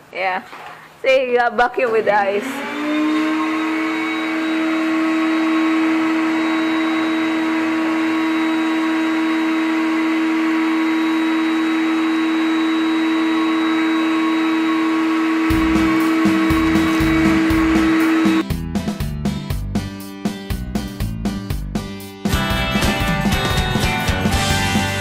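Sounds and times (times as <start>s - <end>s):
vacuum cleaner running: 1.8s - 18.5s.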